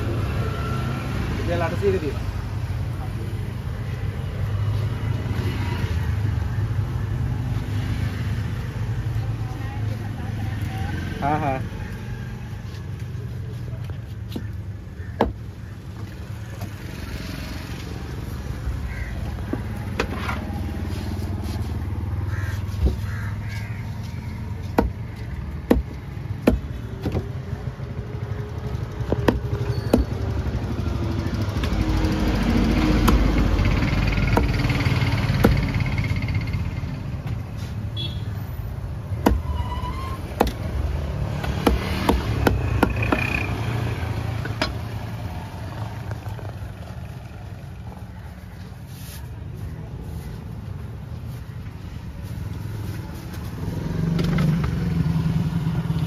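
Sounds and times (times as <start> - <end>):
traffic rumble: 0.0 - 56.0
vehicle passing: 50.6 - 56.0.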